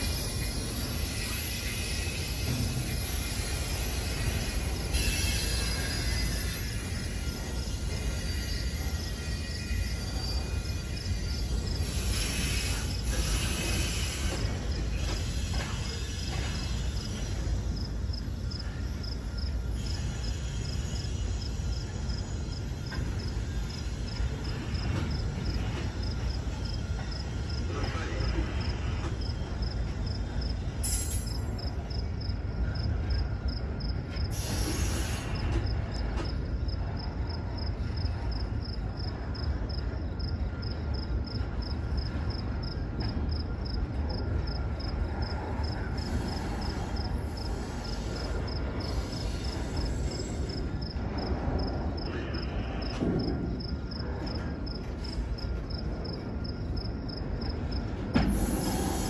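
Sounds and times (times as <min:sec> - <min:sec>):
train wheels rumbling on rail: 0:00.0 - 0:59.0
air hissing bursts: 0:34.3 - 0:35.5, 0:58.2 - 0:59.0.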